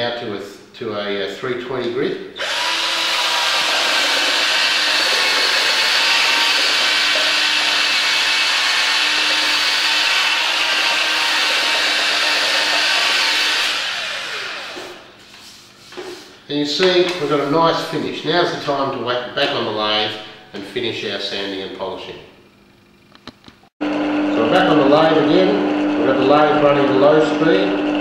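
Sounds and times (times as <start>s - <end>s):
drill sanding wood: 2.4s - 16.3s.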